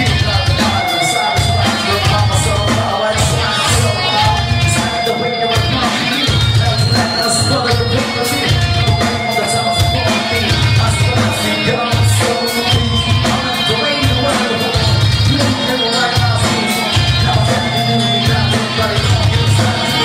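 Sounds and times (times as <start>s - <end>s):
bass guitar: 0.0s - 20.0s
drum kit beat: 0.0s - 20.0s
electric guitars: 0.0s - 20.0s
lead singer singing: 0.0s - 20.0s.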